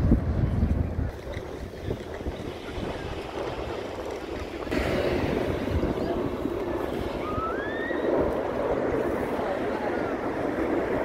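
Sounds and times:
wind buffeting microphone: 0:00.0 - 0:11.0
aircraft engine drone: 0:01.2 - 0:11.0
short rising whistle: 0:07.2 - 0:08.2.

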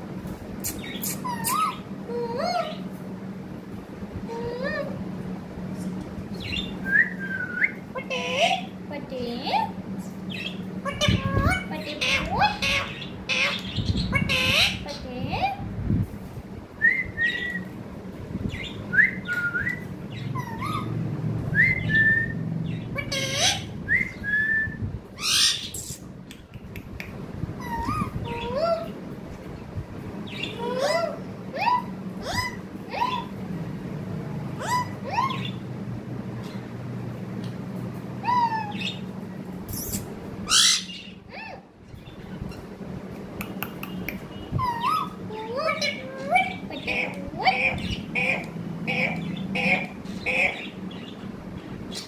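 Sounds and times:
parakeet squawk: 0:00.7 - 0:02.8, 0:10.3 - 0:15.0, 0:20.1 - 0:21.0, 0:22.7 - 0:23.8, 0:25.2 - 0:26.0, 0:27.6 - 0:28.9, 0:30.3 - 0:33.3, 0:34.6 - 0:35.6, 0:38.2 - 0:39.1, 0:39.7 - 0:41.6, 0:44.5 - 0:51.2
parakeet whistling: 0:06.4 - 0:08.7, 0:16.8 - 0:17.7, 0:18.5 - 0:20.9, 0:21.5 - 0:26.0, 0:34.6 - 0:35.6, 0:39.7 - 0:41.6.

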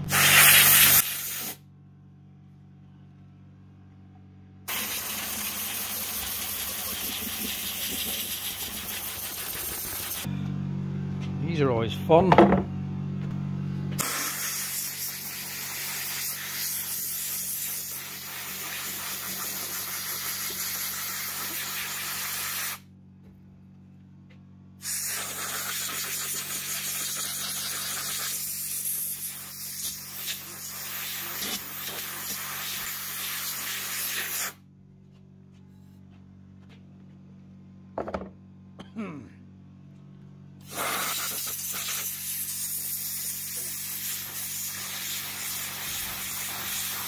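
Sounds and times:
pressure washer jet hissing: 0:00.0 - 0:01.6, 0:04.7 - 0:10.3, 0:14.0 - 0:22.8, 0:24.8 - 0:34.6, 0:40.7 - 0:47.0
steady low hum: 0:00.9 - 0:16.0, 0:22.0 - 0:31.9, 0:34.5 - 0:40.8.

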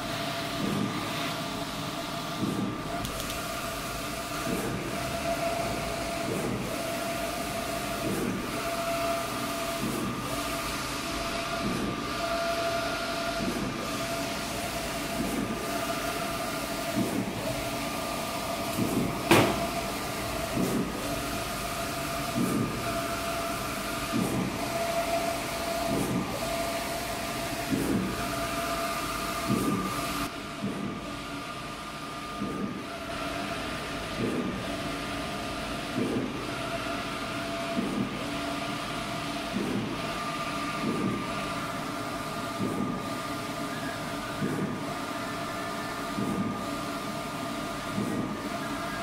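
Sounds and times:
printer carriage whine: 0:00.0 - 0:49.0
sharp click: 0:03.0 - 0:03.4.

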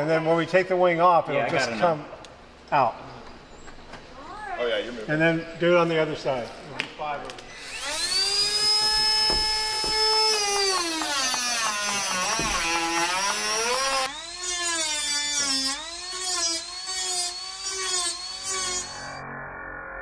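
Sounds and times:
rotary tool cutting metal: 0:07.5 - 0:19.2.

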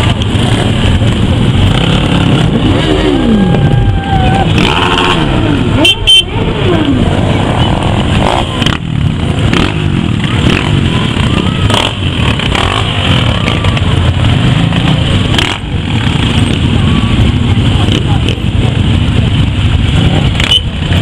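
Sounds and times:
motorcycle engines revving: 0:00.0 - 0:21.0.

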